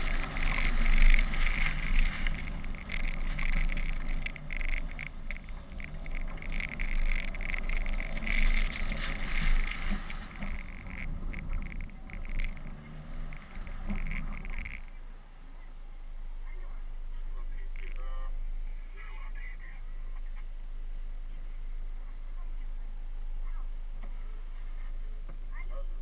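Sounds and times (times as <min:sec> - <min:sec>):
wind buffeting camera: 0:00.0 - 0:15.0
low rumble: 0:00.0 - 0:26.0.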